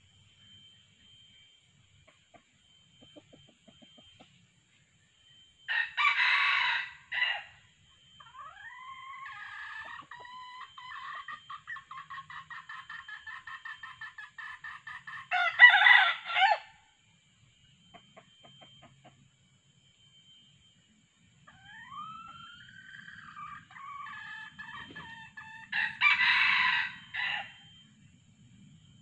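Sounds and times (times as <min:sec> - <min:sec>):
rooster crowing: 0:05.7 - 0:07.6, 0:08.2 - 0:12.4, 0:15.0 - 0:16.8, 0:21.5 - 0:27.7.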